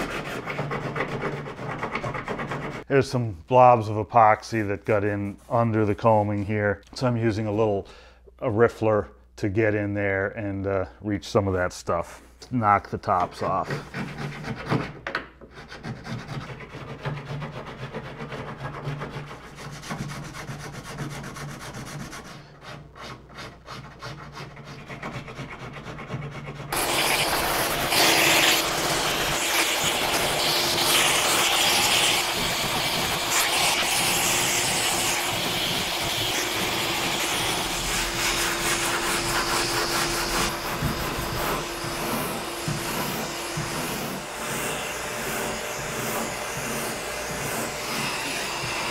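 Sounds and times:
file scraping epoxy: 0:00.0 - 0:02.9, 0:13.1 - 0:48.9
sanding block rubbing wood: 0:00.0 - 0:02.9, 0:13.1 - 0:48.9
shop vacuum hissing and humming: 0:26.7 - 0:48.9.

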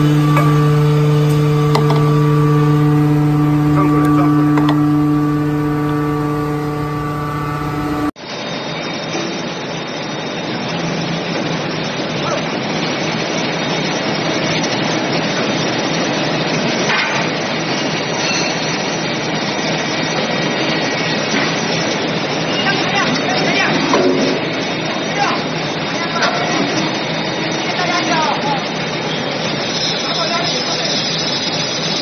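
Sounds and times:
forging press machine noise: 0:00.0 - 0:08.2
steady pitched hum: 0:00.0 - 0:08.2.

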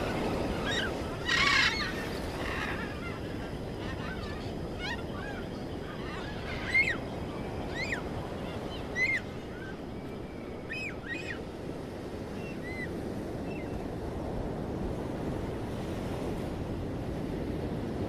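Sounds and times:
bird calling: 0:00.0 - 0:11.5
wind and surf rushing: 0:00.0 - 0:18.0.

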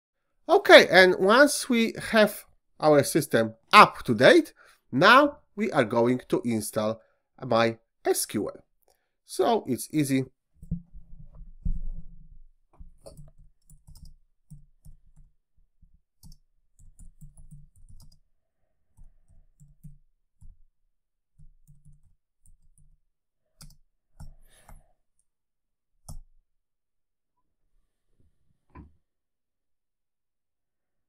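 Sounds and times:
computer keyboard typing: 0:12.9 - 0:15.3, 0:16.2 - 0:18.2, 0:21.4 - 0:23.0.

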